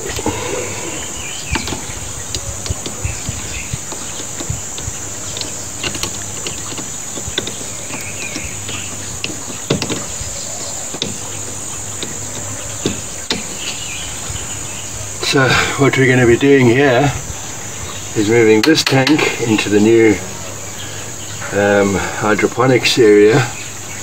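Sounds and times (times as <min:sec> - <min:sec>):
insects droning: 0:00.0 - 0:24.0
hose fitting clicks and knocks: 0:01.5 - 0:13.9, 0:18.4 - 0:19.7.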